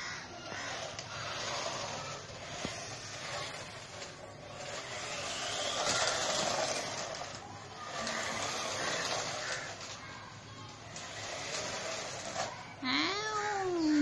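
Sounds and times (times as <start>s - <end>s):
toy car motor whirring: 0.0s - 14.0s
tyres rolling on concrete: 0.0s - 14.0s.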